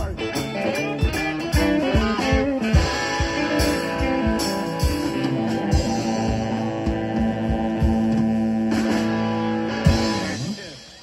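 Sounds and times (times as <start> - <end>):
bass guitar: 0.0 - 11.0
electric guitars: 0.0 - 11.0
steady drum beat: 0.0 - 11.0.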